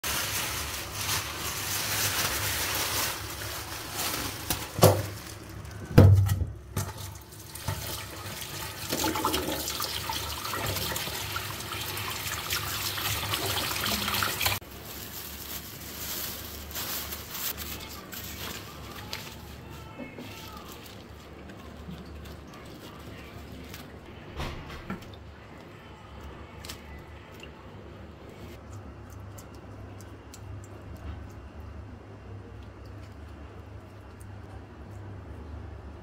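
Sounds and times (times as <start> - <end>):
newspaper and plastic crinkling: 0.0 - 9.5, 10.2 - 24.9
plastic bag rustling: 0.0 - 24.6
tap water running: 4.4 - 14.6.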